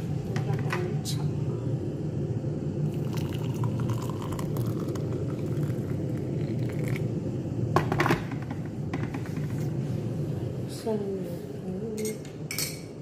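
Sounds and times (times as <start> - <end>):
steady low rumble: 0.0 - 13.0
water pouring into a mug: 2.8 - 7.2.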